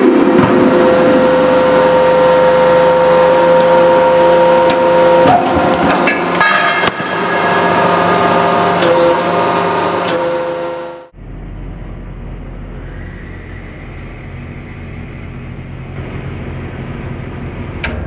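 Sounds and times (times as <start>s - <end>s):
hydraulic press running: 0.0s - 11.1s.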